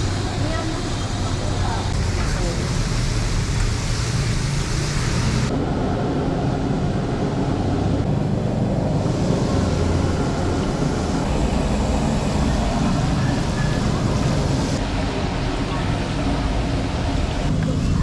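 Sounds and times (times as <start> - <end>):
chicken deep-frying in oil: 1.9 - 5.5.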